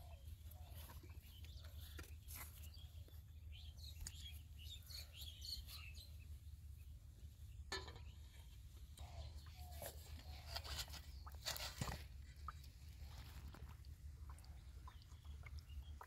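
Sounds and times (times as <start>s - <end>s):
small birds chirping: 0.0s - 16.0s.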